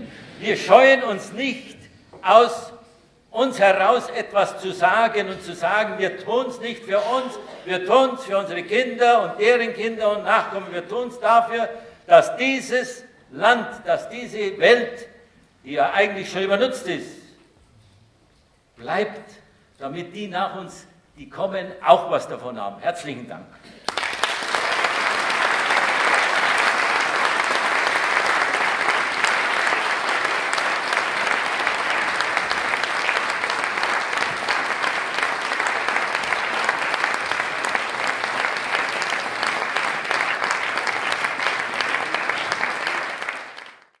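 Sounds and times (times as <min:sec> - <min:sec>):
audience applause: 0:23.8 - 0:44.0.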